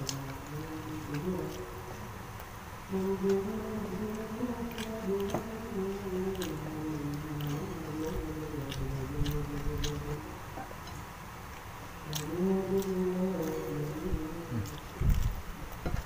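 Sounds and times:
person humming: 0.0s - 2.2s, 2.9s - 10.4s, 12.0s - 15.3s
wet chewing clicks: 0.0s - 16.0s.

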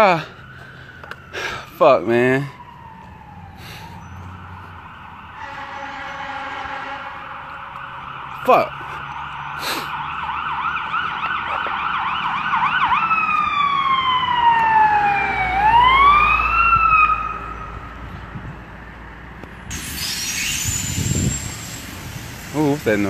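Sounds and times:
fire engine siren: 0.0s - 19.0s, 19.6s - 23.0s
steady hiss: 19.7s - 23.0s.

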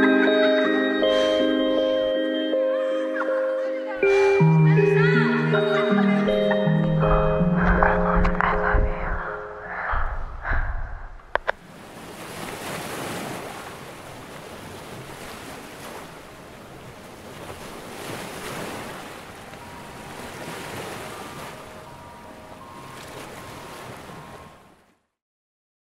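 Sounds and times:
water waves washing in: 9.4s - 24.9s.

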